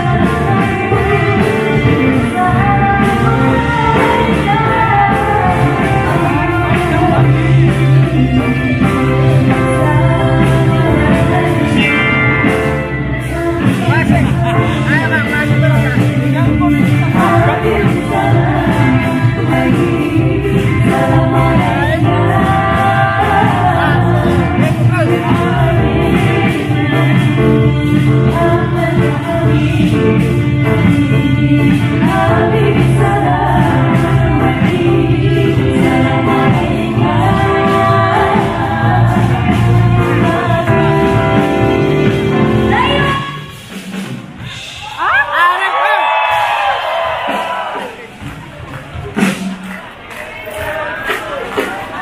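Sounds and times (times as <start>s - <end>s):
woman singing into a microphone: 0.0s - 12.5s, 13.1s - 14.8s, 16.2s - 41.6s
live pop band playing: 0.0s - 52.0s.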